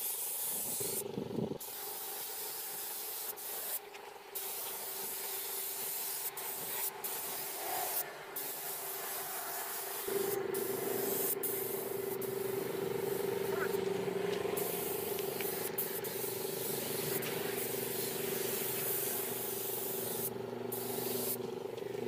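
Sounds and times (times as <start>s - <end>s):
spray gun hissing: 0.0s - 1.0s, 1.6s - 3.8s, 4.4s - 21.4s
steady hum: 6.4s - 22.0s.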